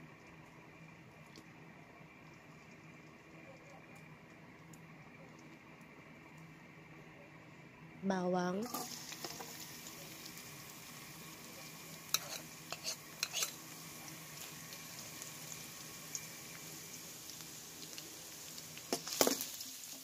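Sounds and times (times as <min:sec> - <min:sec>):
garlic sizzling in oil: 0:08.5 - 0:20.0.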